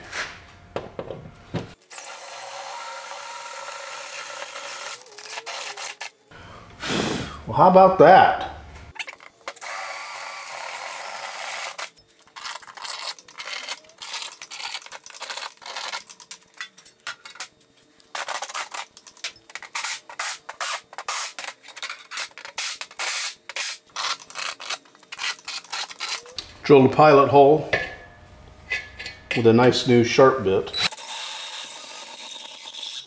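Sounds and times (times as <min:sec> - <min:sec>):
metal scrapes and light knocks: 0:27.6 - 0:29.6.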